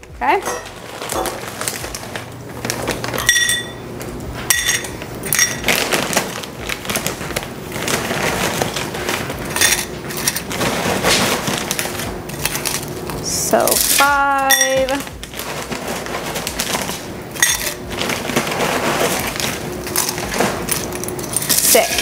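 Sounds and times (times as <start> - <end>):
metal cup clinking: 0.4 - 1.4, 3.2 - 3.8, 4.5 - 5.6, 14.5 - 14.9, 17.4 - 17.9
plastic snack bag crackling: 0.6 - 3.3, 4.0 - 14.2, 14.8 - 22.0
pretzels rattling into metal cup: 4.7 - 22.0.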